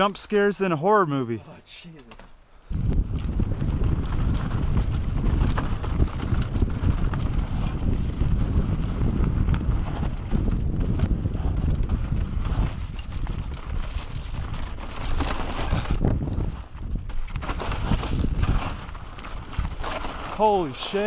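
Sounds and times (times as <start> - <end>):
wind rumble on microphone: 2.6 - 21.0
tyres crunching over loose rock: 3.1 - 21.0
bike clattering and knocking: 11.8 - 20.4.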